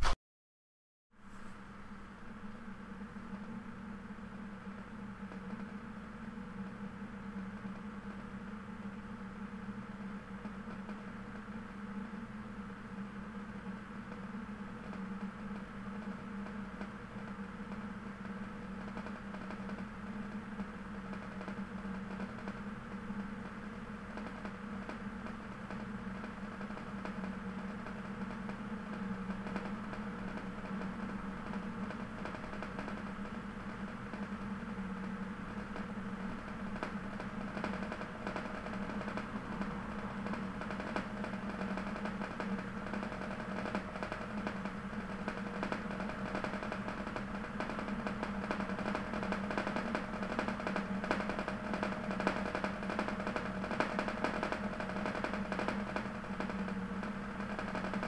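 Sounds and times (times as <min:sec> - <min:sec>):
low mechanical hum: 0:01.2 - 0:58.0.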